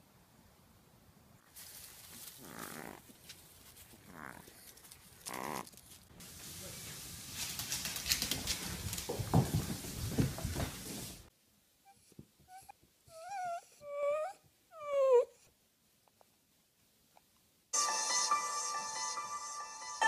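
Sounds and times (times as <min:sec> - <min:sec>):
rustling: 0:01.4 - 0:11.3.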